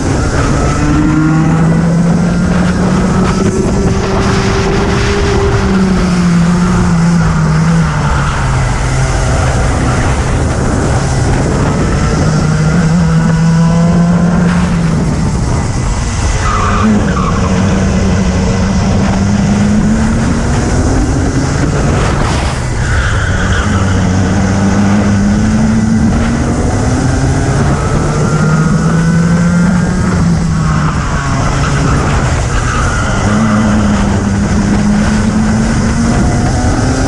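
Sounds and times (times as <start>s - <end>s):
kart engine revving: 0.0s - 37.0s
tyre squeals: 30.4s - 34.5s.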